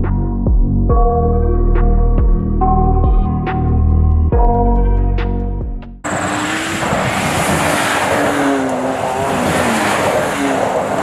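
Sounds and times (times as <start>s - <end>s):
pickup engine revving: 6.0s - 11.0s
tyre and road noise: 6.0s - 11.0s.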